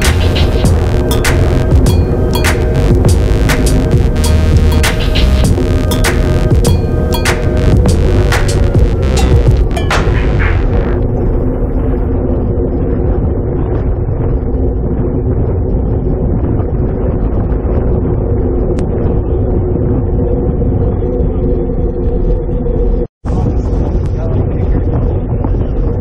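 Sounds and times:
road noise: 0:00.0 - 0:15.6
wind rushing over microphone: 0:00.0 - 0:26.0.

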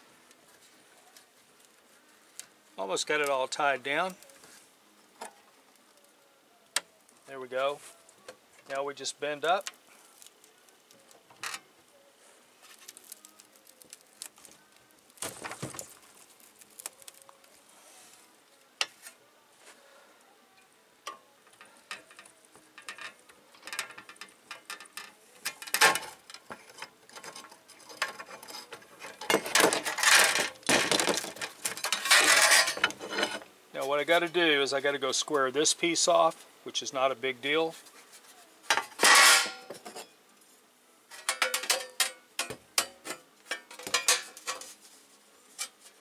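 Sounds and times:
sheet metal clicks and scrapes: 0:21.1 - 0:33.5, 0:38.7 - 0:40.1, 0:41.1 - 0:44.8
metal clamps clattering: 0:23.7 - 0:33.4, 0:38.7 - 0:40.1, 0:41.2 - 0:44.7.

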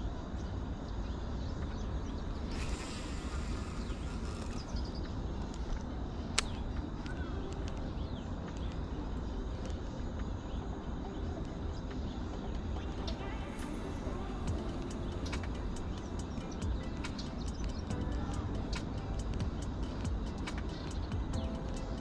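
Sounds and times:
steady low rumble: 0:00.0 - 0:22.0
faint bird calls: 0:01.0 - 0:05.8
sharp click: 0:15.2 - 0:15.8.

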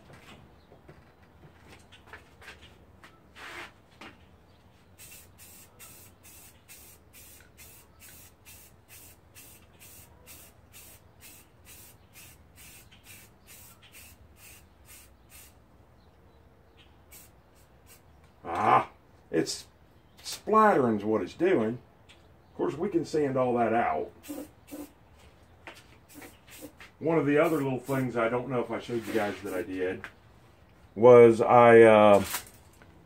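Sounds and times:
aerosol spray can hissing: 0:05.0 - 0:15.6, 0:17.1 - 0:18.0, 0:24.2 - 0:24.9, 0:26.1 - 0:26.8.

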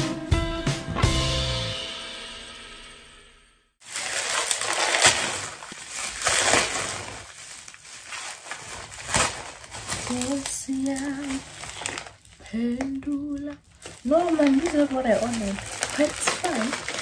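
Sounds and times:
plastic packaging crinkling: 0:03.8 - 0:17.0.

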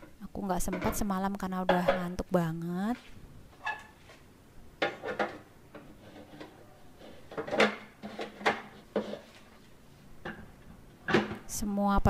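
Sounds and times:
plastic kitchenware knocking and clattering: 0:00.0 - 0:02.2, 0:04.8 - 0:09.4, 0:10.2 - 0:11.5.

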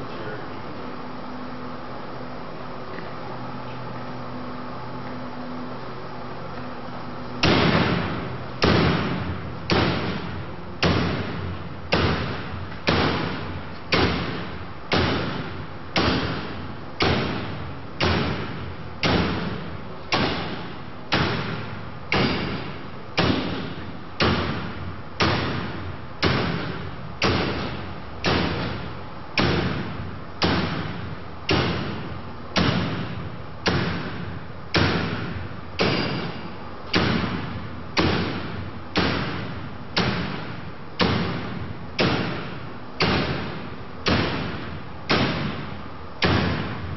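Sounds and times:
axe striking wire curtain: 0:11.9 - 0:34.2, 0:34.8 - 0:46.8.

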